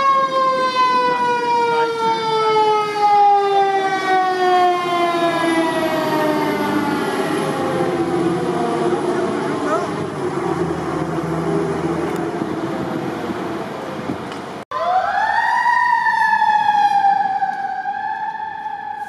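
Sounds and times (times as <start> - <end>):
fire truck siren wailing: 0.0 - 14.0, 14.7 - 19.0
fire truck engine running: 0.0 - 15.2
street traffic: 0.0 - 19.0.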